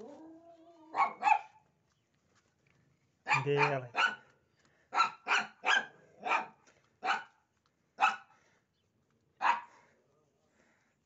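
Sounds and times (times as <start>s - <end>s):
dog barking: 0.9s - 1.6s, 3.2s - 4.3s, 4.9s - 7.4s, 8.0s - 8.3s, 9.4s - 9.8s.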